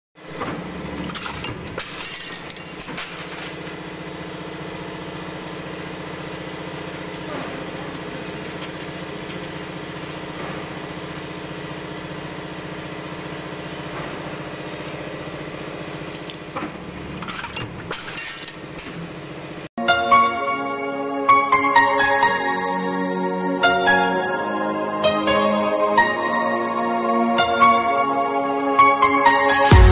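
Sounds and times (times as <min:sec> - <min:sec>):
stamping press mechanical hum: 0:00.2 - 0:19.7.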